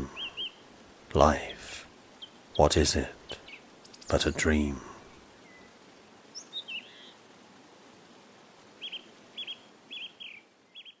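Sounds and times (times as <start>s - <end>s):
faint outdoor hiss: 0.0s - 11.0s
small bird chirping: 0.1s - 0.7s, 2.2s - 2.5s, 3.3s - 4.2s, 5.4s - 7.2s, 8.8s - 11.0s.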